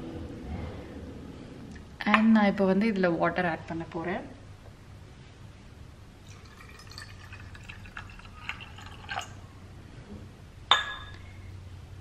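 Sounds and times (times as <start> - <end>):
water pouring into a glass bowl: 6.2 - 9.4.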